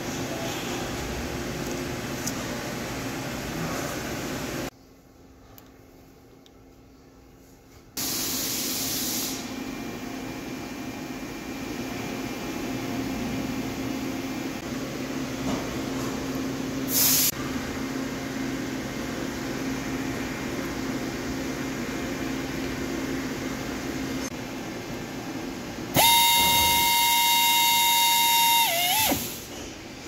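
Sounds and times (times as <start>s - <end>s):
workshop machinery humming: 0.0s - 30.0s
hiss: 8.0s - 9.5s, 16.9s - 17.4s.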